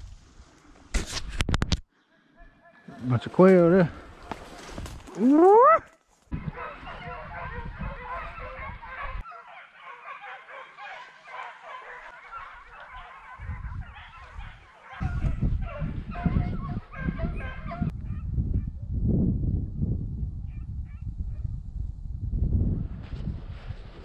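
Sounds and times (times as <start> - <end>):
chorus of animal calls: 6.4 - 17.9.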